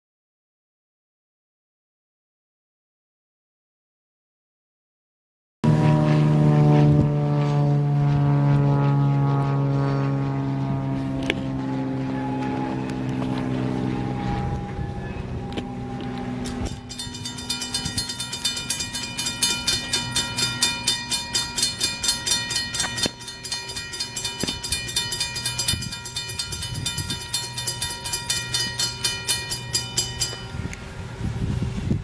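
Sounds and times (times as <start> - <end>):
diesel locomotive humming: 5.7 - 32.0
railroad crossing bell ringing: 12.1 - 31.0.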